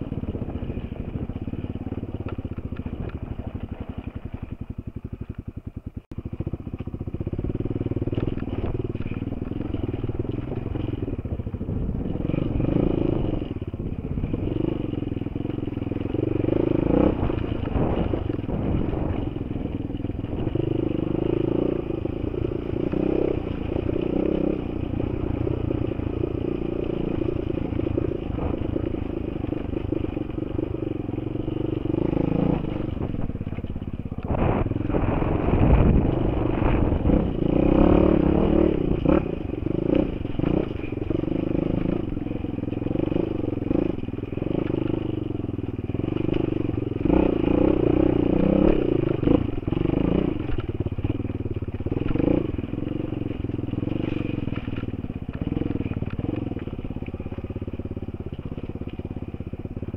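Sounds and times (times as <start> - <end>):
motorcycle engine revving: 0.0 - 59.9
wind noise: 16.8 - 20.8, 31.9 - 41.0.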